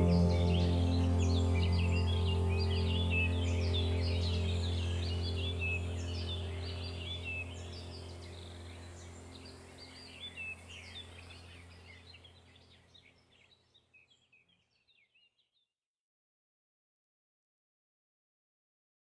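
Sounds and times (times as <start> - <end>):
steady low hum: 0.0 - 12.7
birds chirping: 0.0 - 15.4.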